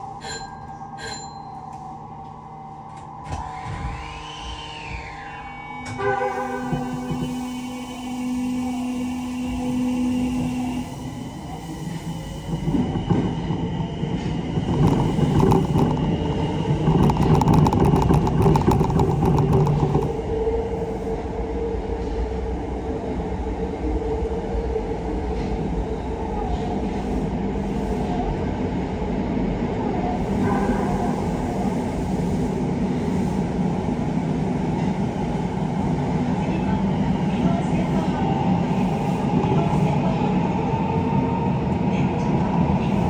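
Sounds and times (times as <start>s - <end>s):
train motor tone: 0.0s - 11.5s
train wheels rumbling on rails: 5.8s - 43.0s.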